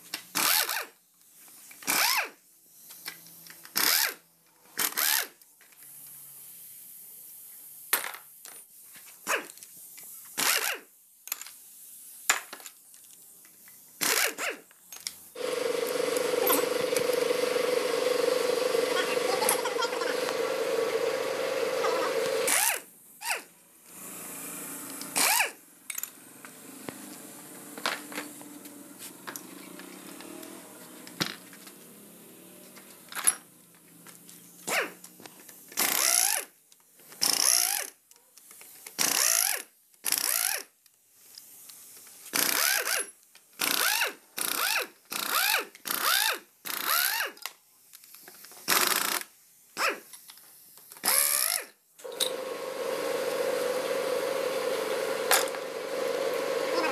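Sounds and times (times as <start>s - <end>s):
ratchet wrench clicking: 1.8s - 2.3s, 3.0s - 4.2s, 4.8s - 5.4s, 10.4s - 10.8s, 14.0s - 15.2s, 22.5s - 23.4s, 24.9s - 26.2s, 35.8s - 36.5s, 37.2s - 38.0s, 39.0s - 40.7s, 42.3s - 47.4s, 51.0s - 52.3s.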